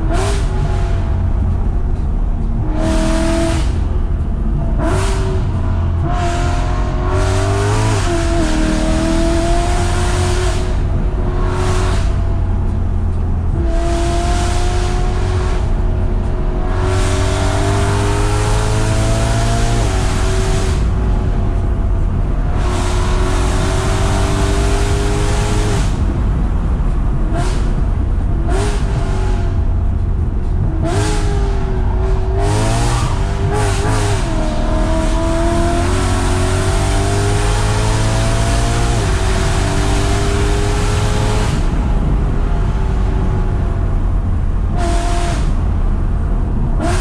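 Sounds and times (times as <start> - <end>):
car engine revving: 0.0 - 47.0.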